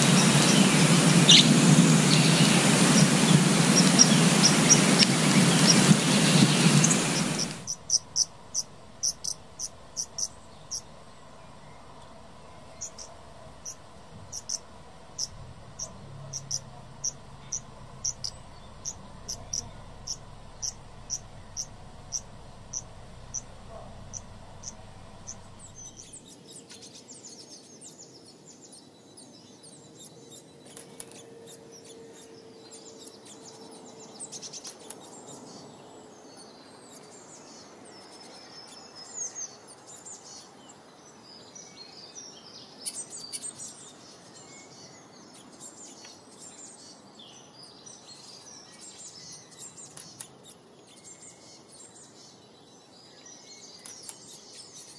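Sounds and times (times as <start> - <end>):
cricket-like chirping: 0.0 - 26.1
songbirds chirping and trilling: 0.0 - 26.1.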